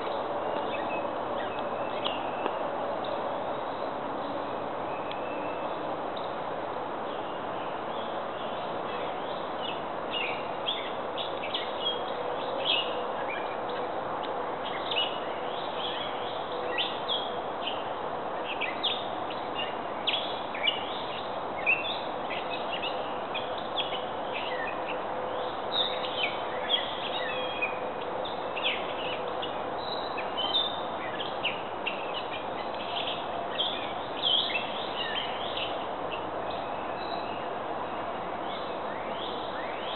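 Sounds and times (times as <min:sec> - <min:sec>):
steady background hiss: 0:00.0 - 0:39.9
small birds chirping: 0:14.6 - 0:37.5.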